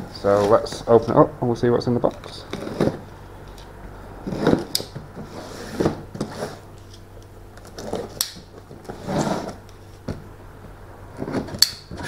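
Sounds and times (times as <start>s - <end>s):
cardboard box scraping and rustling: 2.5s - 3.1s, 4.2s - 6.7s, 7.7s - 9.6s.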